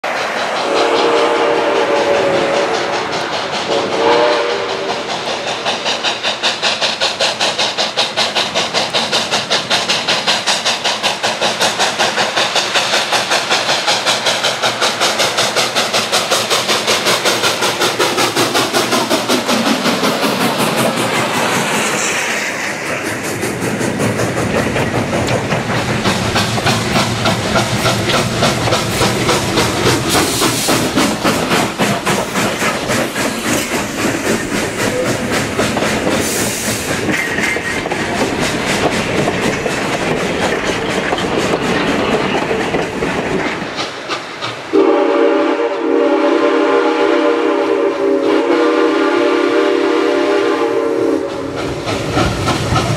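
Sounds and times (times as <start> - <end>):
steam hissing: 0.0 - 52.9
steam locomotive chuffing: 0.0 - 52.9
steam locomotive whistle: 0.5 - 5.3, 44.7 - 51.6.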